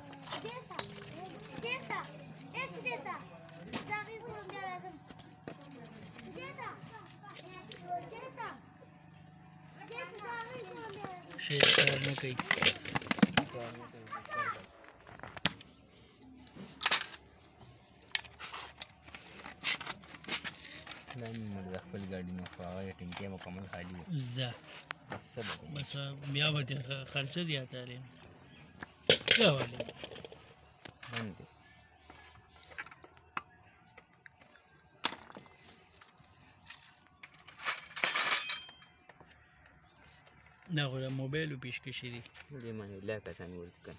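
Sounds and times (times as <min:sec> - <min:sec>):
metal parts clattering: 0:10.8 - 0:13.4, 0:16.8 - 0:17.2, 0:29.1 - 0:30.4, 0:36.7 - 0:38.9.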